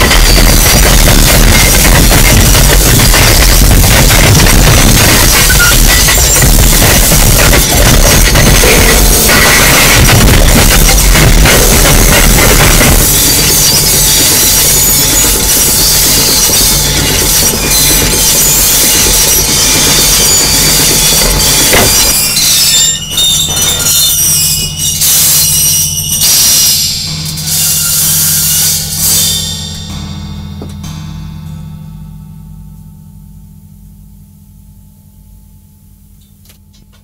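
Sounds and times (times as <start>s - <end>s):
stuttering bursts of noise: 0.0s - 22.3s
distorted noise music: 0.0s - 31.3s
low steady drone: 24.6s - 36.2s.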